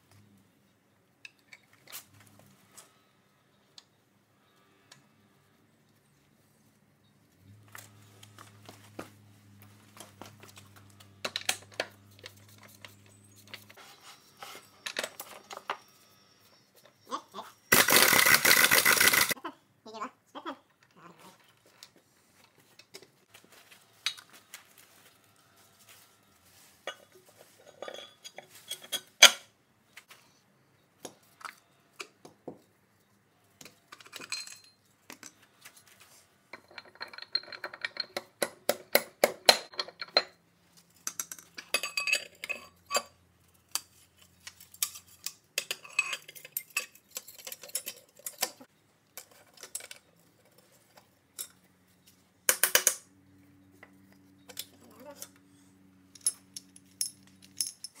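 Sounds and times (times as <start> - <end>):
metal parts clinking and clattering: 17.7 - 19.4, 26.9 - 29.4, 33.6 - 35.9, 36.5 - 51.7, 56.0 - 58.0.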